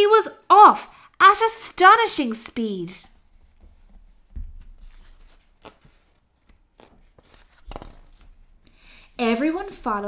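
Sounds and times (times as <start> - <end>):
soft rustles and taps: 3.3 - 8.4
book page turning: 4.6 - 8.5.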